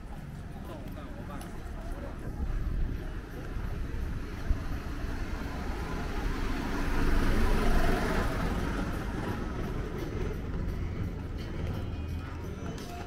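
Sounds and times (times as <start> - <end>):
low traffic rumble: 0.0 - 13.0
motor vehicle passing: 2.9 - 12.4.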